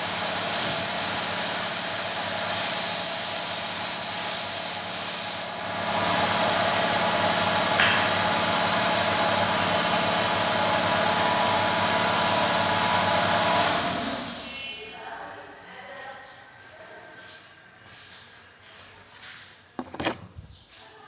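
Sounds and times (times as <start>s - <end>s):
spray gun hissing: 0.0s - 5.6s, 13.6s - 14.6s
air compressor running: 0.0s - 14.8s.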